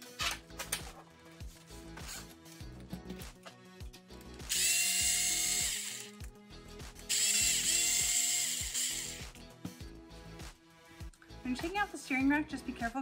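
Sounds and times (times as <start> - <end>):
power screwdriver motor whine: 4.5 - 6.2, 7.1 - 9.3.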